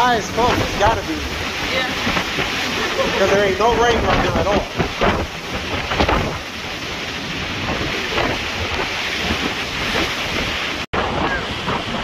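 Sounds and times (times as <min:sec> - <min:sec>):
heavy surf: 0:00.0 - 0:12.0
strong wind on microphone: 0:00.0 - 0:12.0.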